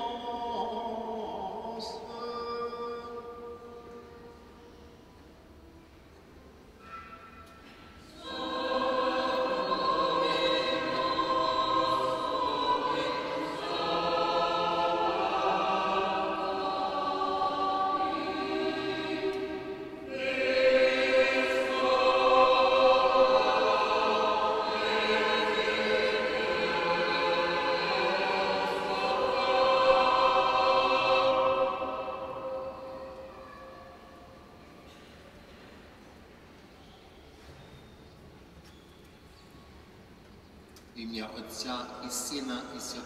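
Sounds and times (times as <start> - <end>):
choir singing unaccompanied chant: 0.0 - 4.5, 8.0 - 33.6.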